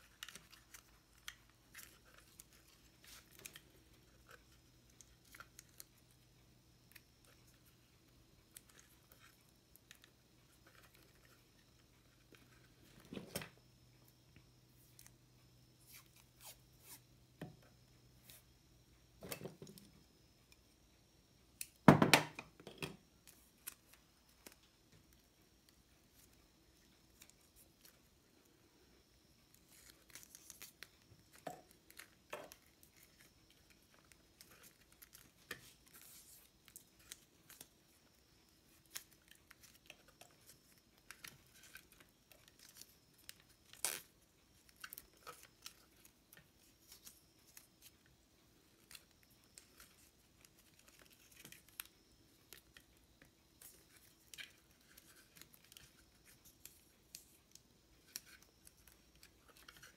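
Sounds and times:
tape pulled off roll crackling: 38.7s - 47.7s.

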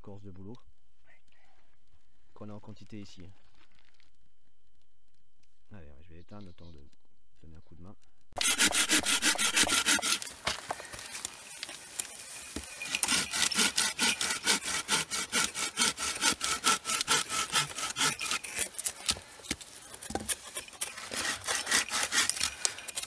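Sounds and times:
knife scraping wood: 8.4s - 23.0s.

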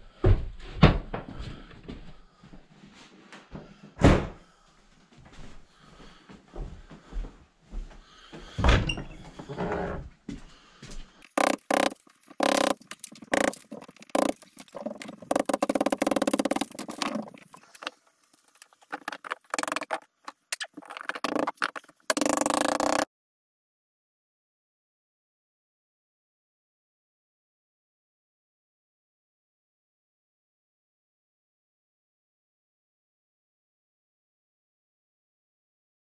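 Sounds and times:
stuttering power tool bursts: 11.3s - 13.6s.

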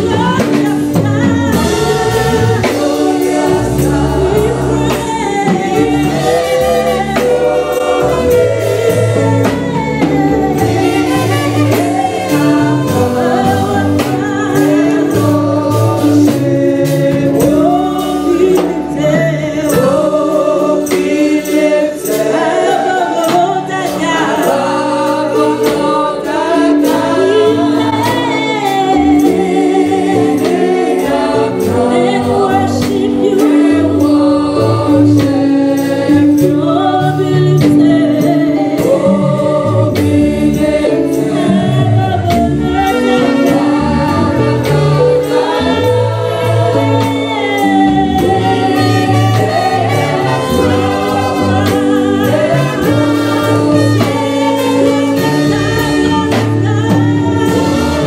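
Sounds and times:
band with bass and beat: 0.0s - 58.0s
group singing worship song: 0.0s - 58.0s.

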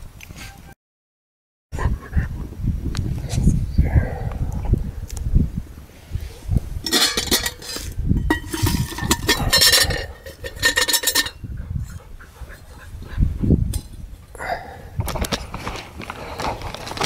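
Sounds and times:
metal pot lid scraping and clinking: 6.8s - 12.0s.

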